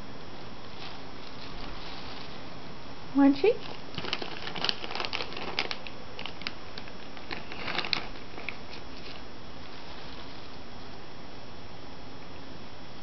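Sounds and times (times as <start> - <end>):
cat crunching dry treat: 3.5 - 10.4.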